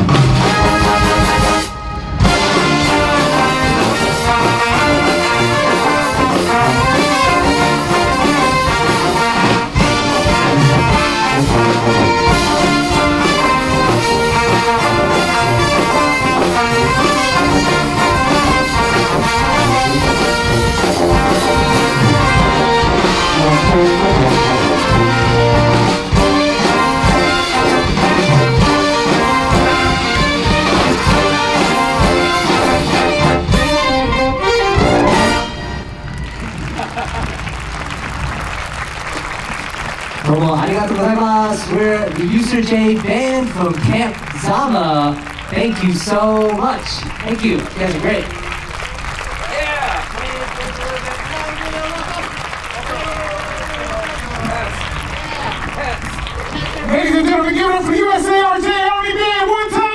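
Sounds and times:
drum kit: 0.0s - 35.6s
brass band playing: 0.0s - 59.9s.

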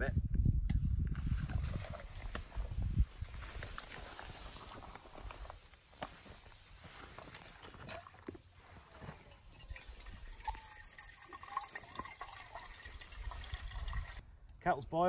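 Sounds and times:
water pouring into kettle: 9.0s - 14.2s.

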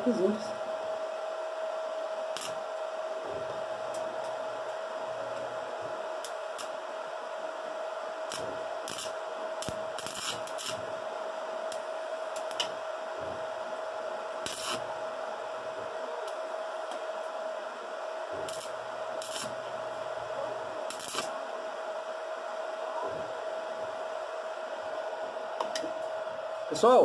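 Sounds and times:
steady machine whine: 0.0s - 27.0s
welding arc crackling: 2.1s - 21.6s.

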